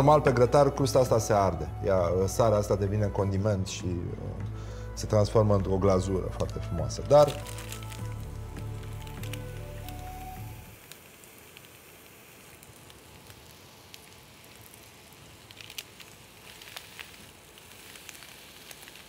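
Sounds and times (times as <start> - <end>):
oil popping and crackling: 5.0 - 19.0
fish sizzling in a pan: 6.0 - 19.0.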